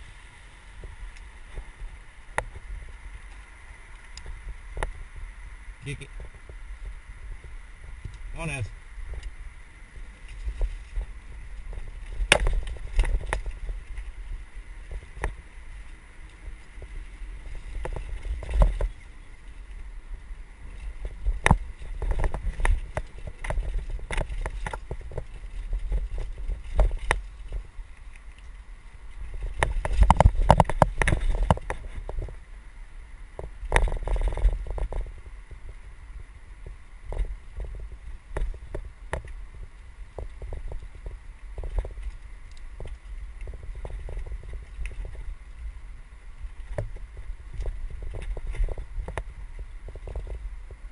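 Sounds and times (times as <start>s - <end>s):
bike riding low rumble: 0.0s - 50.9s
bike knocks and rattles: 10.2s - 19.5s, 20.7s - 27.6s, 29.2s - 32.4s.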